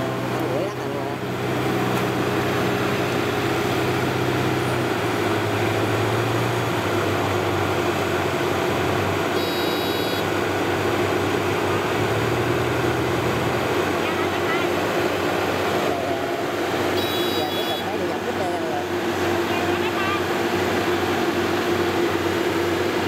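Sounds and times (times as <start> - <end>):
diesel engine running: 0.0 - 23.0
brief high tone: 9.4 - 10.3, 17.0 - 17.9.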